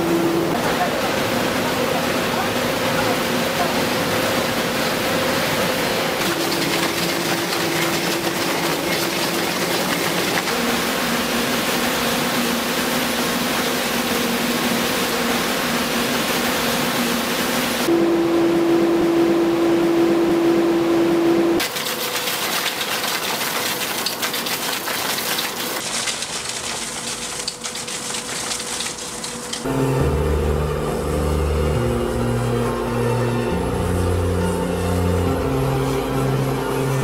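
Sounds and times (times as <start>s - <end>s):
mining machine working: 0.0s - 17.9s, 21.6s - 31.1s
droning note changing pitch: 17.9s - 21.6s, 29.7s - 37.0s.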